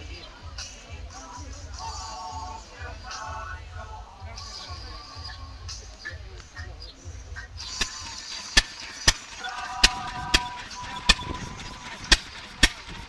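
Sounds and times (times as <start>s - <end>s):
stationary engine exhaust bangs: 7.1s - 13.0s.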